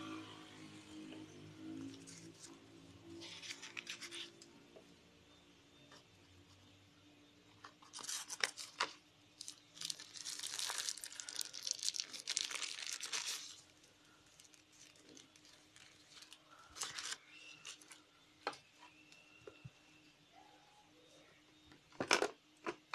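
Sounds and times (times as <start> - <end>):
paper insert crinkling: 2.0 - 4.5, 7.8 - 18.0.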